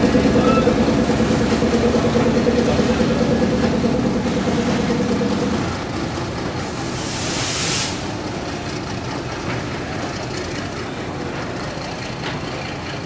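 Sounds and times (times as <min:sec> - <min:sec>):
wagon wheels rolling on rail: 0:00.0 - 0:07.0, 0:08.0 - 0:13.0
brief hiss: 0:06.9 - 0:08.2.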